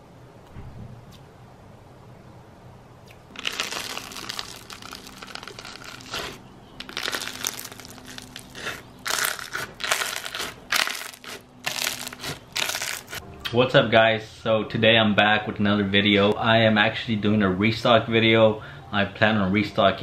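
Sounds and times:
slime squeezed and popping: 3.3s - 13.2s.

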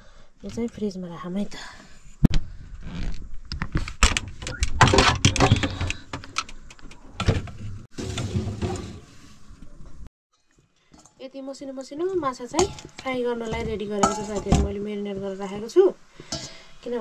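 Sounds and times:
metal pot clattering and knocking: 12.6s - 14.8s.

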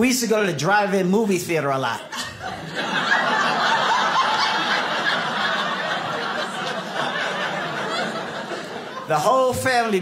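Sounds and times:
audience laughing: 2.0s - 10.0s.

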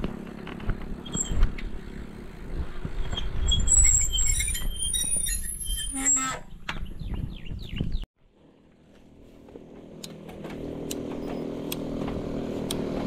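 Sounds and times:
wind rumbling on microphone: 0.0s - 8.1s
short high-pitched squeaks: 1.0s - 1.6s, 3.0s - 6.6s.

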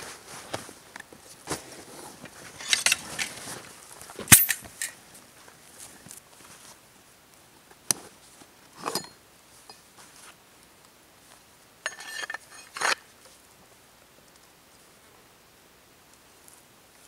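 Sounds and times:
metallic clinks and rustles: 2.5s - 3.5s, 4.3s - 5.0s, 11.8s - 13.0s.

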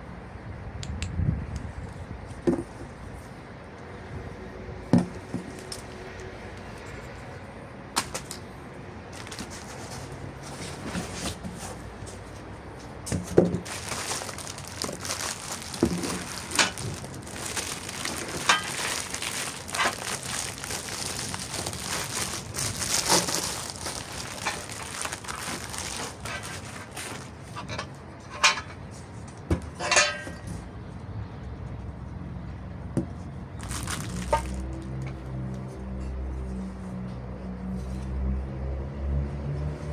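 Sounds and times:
bubble wrap crinkling: 9.2s - 10.1s, 13.6s - 27.4s, 33.6s - 35.0s.

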